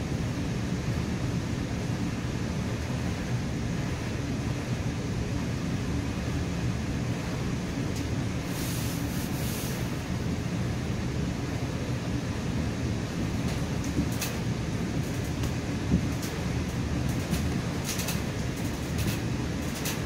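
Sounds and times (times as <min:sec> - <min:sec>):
train wheels rumbling on rails: 0:05.6 - 0:20.0
brief high hiss: 0:08.5 - 0:10.0.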